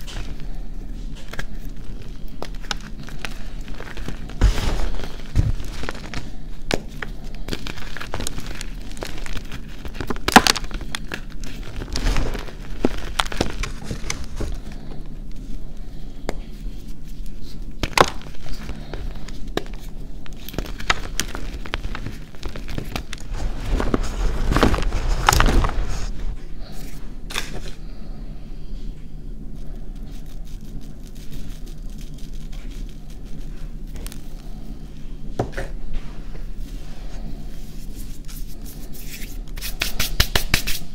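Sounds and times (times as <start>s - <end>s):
hands crushing chalk blocks: 1.2s - 14.6s, 17.8s - 25.8s, 38.6s - 40.9s.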